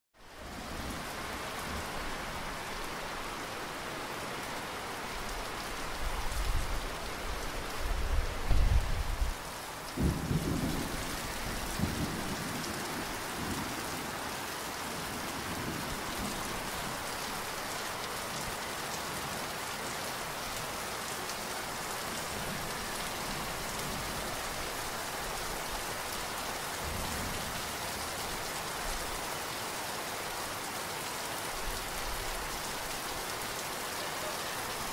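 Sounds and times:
heavy rain falling: 0.2s - 34.9s.

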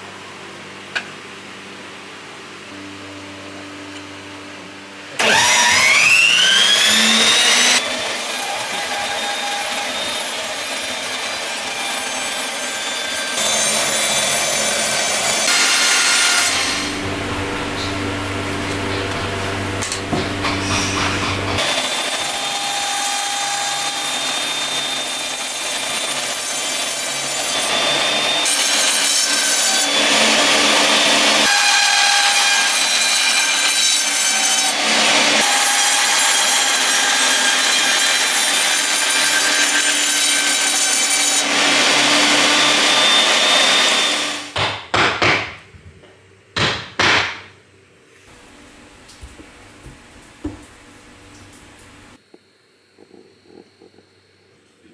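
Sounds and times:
band saw cutting wood: 5.1s - 44.6s
motor hum: 16.5s - 21.6s.

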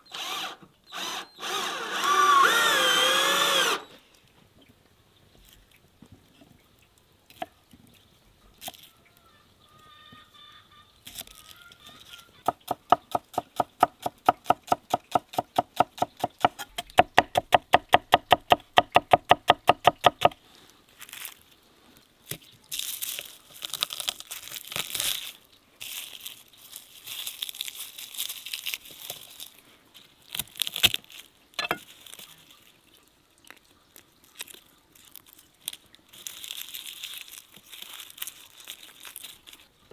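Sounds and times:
garlic skins crackling being peeled: 8.6s - 9.0s, 11.0s - 20.3s, 20.9s - 39.9s
knife chopping on wooden board: 12.5s - 20.4s.

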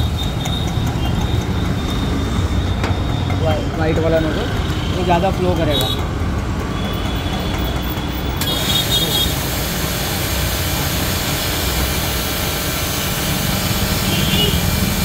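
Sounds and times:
high-pressure water jet hiss: 8.4s - 15.0s
pressure washer motor running: 8.4s - 15.0s.

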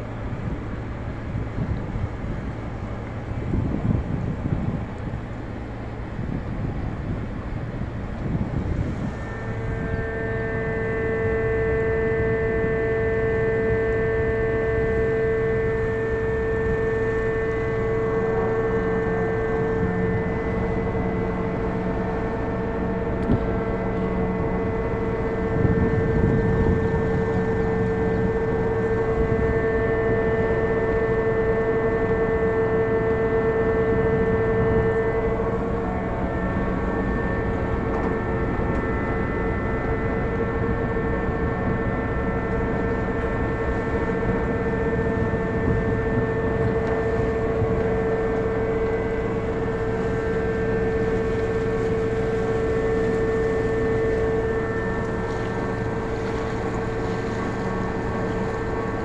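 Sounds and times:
machine humming steadily: 0.0s - 59.0s.

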